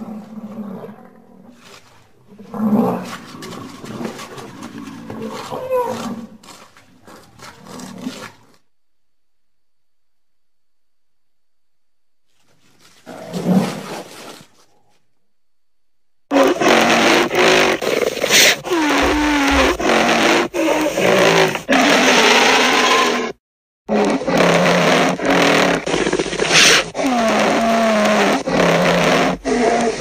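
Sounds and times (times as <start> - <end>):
rough low animal calls: 16.3 - 30.0.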